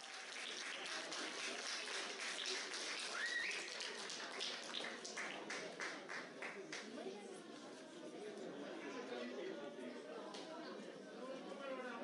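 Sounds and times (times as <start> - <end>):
spectators clapping: 0.0 - 7.0.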